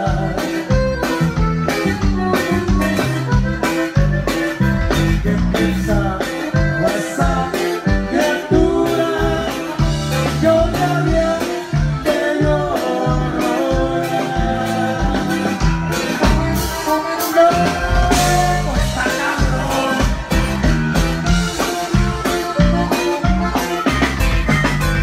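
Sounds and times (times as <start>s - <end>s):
man singing: 0.0s - 1.0s, 5.2s - 20.7s
accordion melody: 0.0s - 25.0s
band playing: 0.0s - 25.0s.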